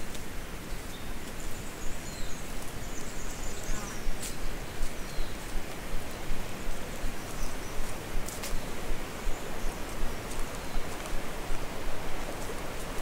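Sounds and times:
footsteps on leafy dirt path: 9.7 - 13.0.

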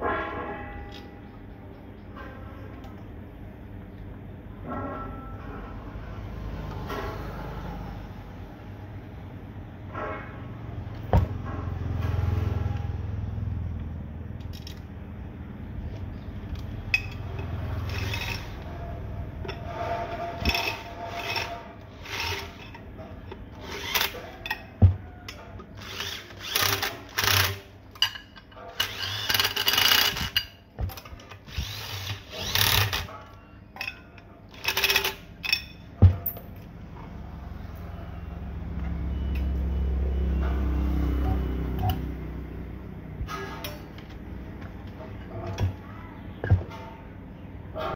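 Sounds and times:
electric drill bursts: 28.8 - 30.3, 31.5 - 33.0.

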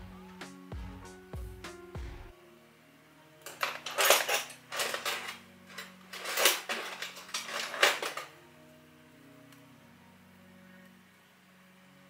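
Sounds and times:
small metal tools clinking and scraping: 3.4 - 8.4.

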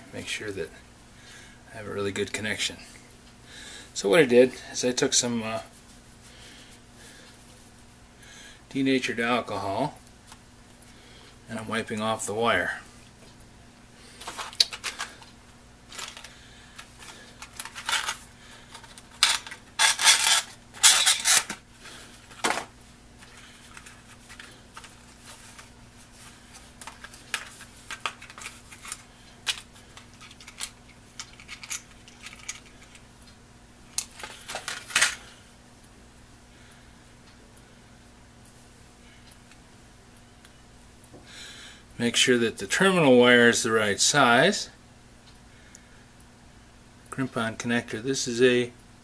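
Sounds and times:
faint low hum: 0.0 - 49.0.

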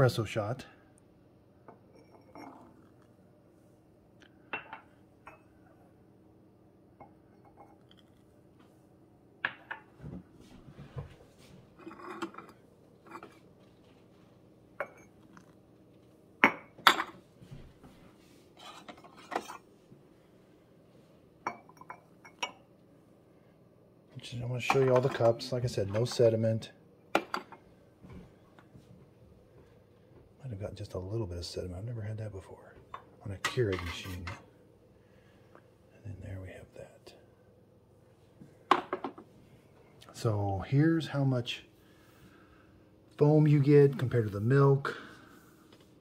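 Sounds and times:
cups and mugs clinking: 1.6 - 3.1, 4.4 - 5.8, 7.0 - 8.2, 9.4 - 10.0, 11.8 - 13.5, 14.8 - 15.6, 16.4 - 17.2, 18.6 - 19.7, 21.4 - 22.7, 24.6 - 26.2, 27.1 - 27.7, 32.8 - 34.4, 38.7 - 39.3.

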